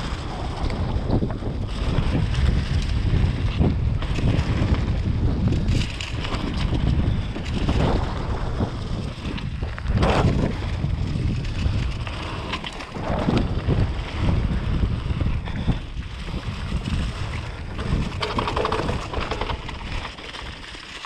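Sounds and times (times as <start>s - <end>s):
wind rushing over microphone: 0.0s - 20.8s
bike tyre rumble: 0.0s - 21.0s
bike knocking over ground: 17.8s - 20.7s.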